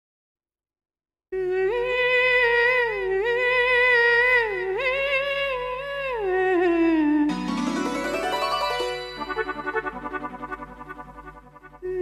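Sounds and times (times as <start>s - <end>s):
electronic keyboard: 7.3s - 11.8s.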